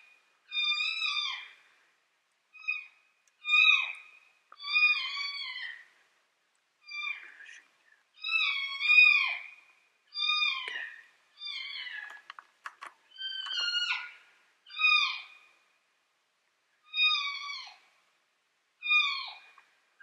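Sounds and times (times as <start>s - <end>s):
faint clicks: 10.6s - 10.9s, 11.8s - 14.0s.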